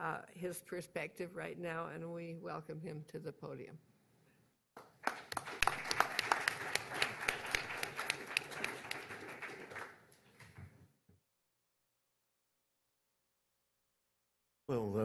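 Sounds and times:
audience applauding: 4.8 - 10.2.

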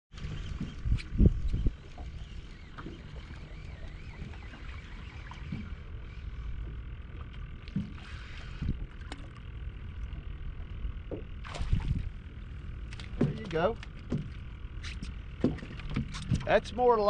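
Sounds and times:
wind buffeting microphone: 0.1 - 2.7, 11.2 - 12.3
light knocks: 12.9 - 14.4.

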